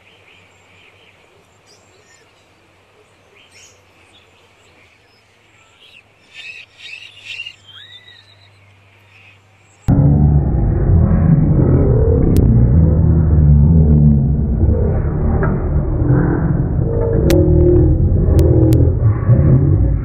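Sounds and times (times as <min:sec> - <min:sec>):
birds chirping: 0:00.0 - 0:09.9
low hum: 0:09.9 - 0:20.0.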